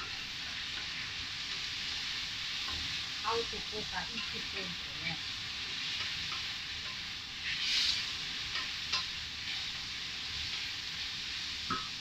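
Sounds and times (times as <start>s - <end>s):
meat sizzling in a frying pan: 0.0s - 12.0s.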